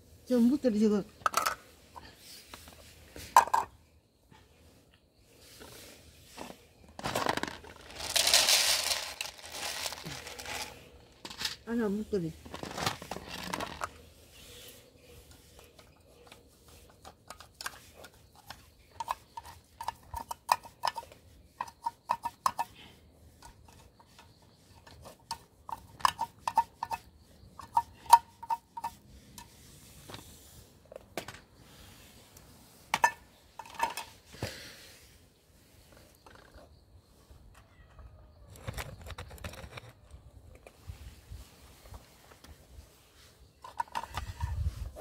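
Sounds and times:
cats crunching dry kibble: 7.0 - 11.3, 12.4 - 13.9.

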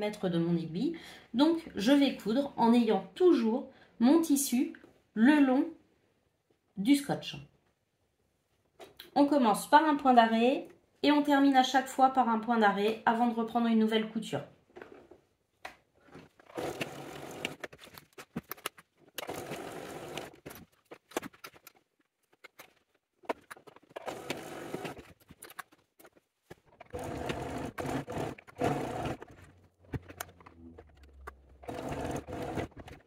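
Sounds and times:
sewing machine stitching: 16.4 - 17.7, 19.2 - 20.6, 23.9 - 25.2, 26.8 - 33.0.

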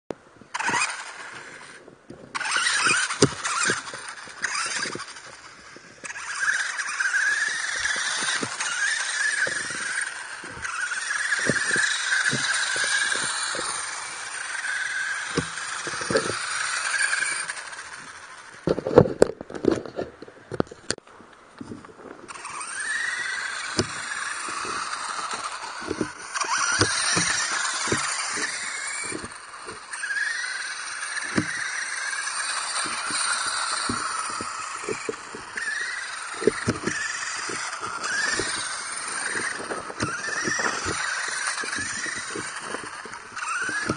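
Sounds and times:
toy car knocking and rattling: 0.5 - 21.0, 21.6 - 43.9
toy car motor whining: 0.5 - 21.0, 21.6 - 43.9.

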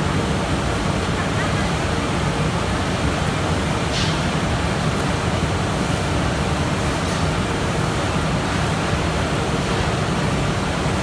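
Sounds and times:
machine fans low hum: 0.0 - 11.0.

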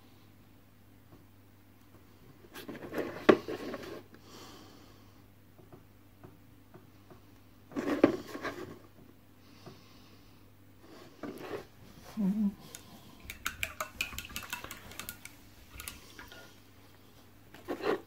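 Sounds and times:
rustling and knocking of objects: 5.5 - 9.8.

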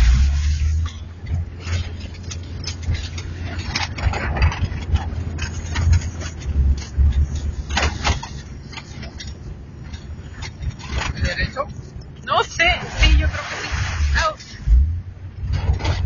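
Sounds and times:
car engine rumbling inside cabin: 0.0 - 16.0
knocks and rattles from bumps: 0.8 - 11.9.

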